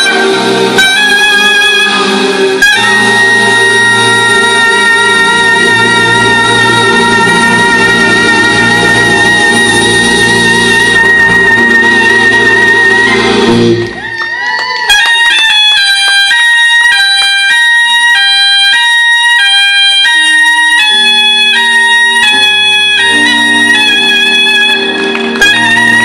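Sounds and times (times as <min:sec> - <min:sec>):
bass and keyboards: 0:00.0 - 0:14.1
soprano saxophone playing: 0:00.0 - 0:26.0.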